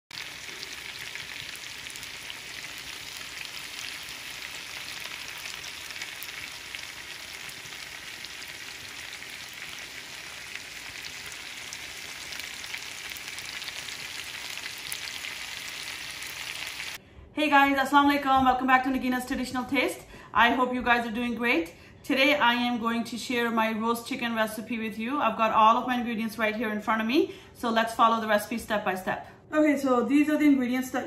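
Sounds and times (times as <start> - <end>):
chicken sizzling in skillet: 0.1 - 17.0.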